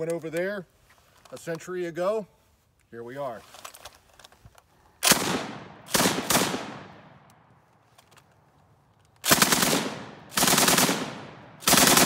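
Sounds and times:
automatic gunfire burst: 0:05.0 - 0:06.7, 0:09.3 - 0:12.0
rifle shots with echo: 0:05.0 - 0:07.3, 0:09.2 - 0:12.0.

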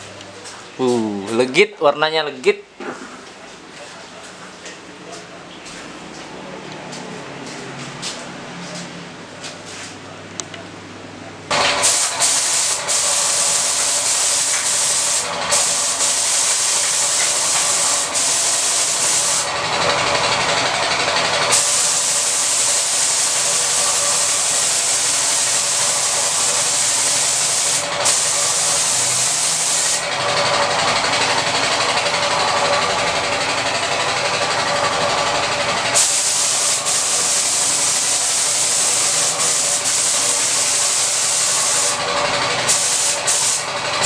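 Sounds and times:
paint spray gun hissing: 0:11.6 - 0:19.5, 0:21.3 - 0:30.1, 0:35.9 - 0:42.0, 0:42.6 - 0:44.0.

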